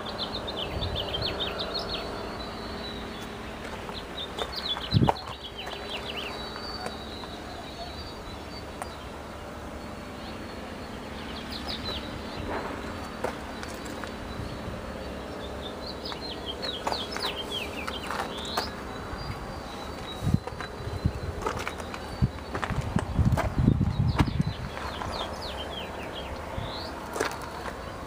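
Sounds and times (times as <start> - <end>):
small birds chirping: 0.0 - 28.0
steady low hum: 0.0 - 28.0.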